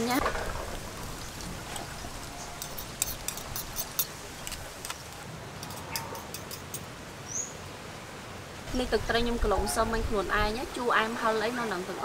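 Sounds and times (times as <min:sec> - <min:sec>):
scallops crackling on a grill: 0:00.0 - 0:06.8.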